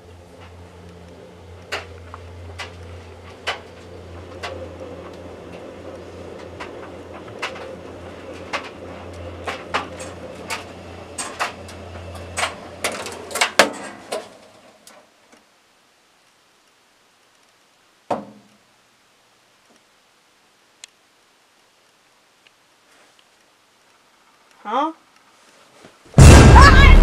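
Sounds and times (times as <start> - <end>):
clothes dryer humming: 0.0 - 14.7
thump: 26.2 - 27.0.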